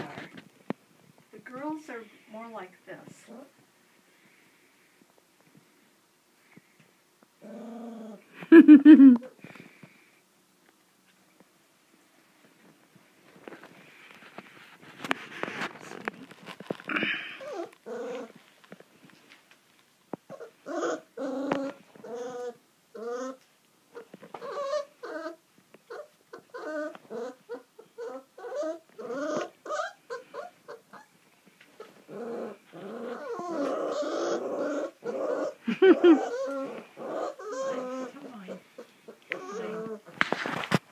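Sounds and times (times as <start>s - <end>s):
puppies whimpering and growling: 7.4s - 9.3s, 15.6s - 18.4s, 20.3s - 40.2s.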